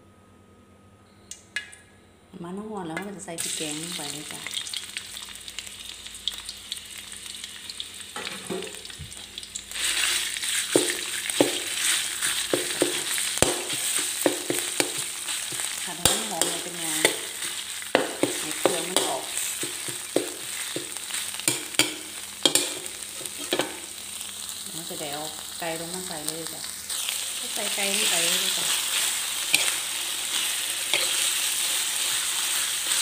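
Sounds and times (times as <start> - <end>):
curry paste sizzling in oil: 3.4 - 33.0
metal spatula scraping pan: 28.9 - 33.0.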